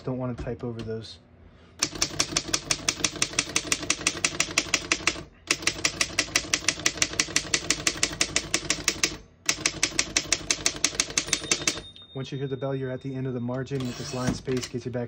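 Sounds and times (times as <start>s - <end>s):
typewriter keys rattling: 1.8s - 11.8s.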